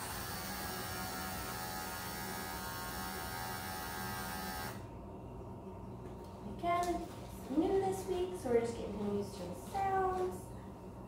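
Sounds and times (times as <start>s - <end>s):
electric clippers humming: 0.0s - 4.9s.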